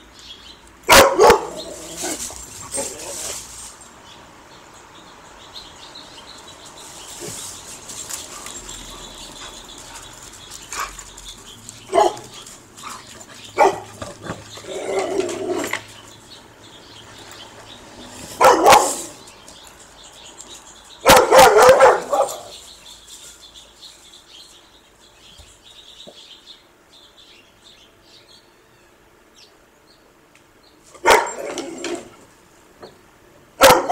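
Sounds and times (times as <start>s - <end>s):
dog barking: 0.9s - 1.7s, 11.9s - 12.3s, 13.6s - 13.9s, 18.4s - 19.2s, 21.0s - 22.5s, 31.0s - 31.5s, 33.6s - 33.9s.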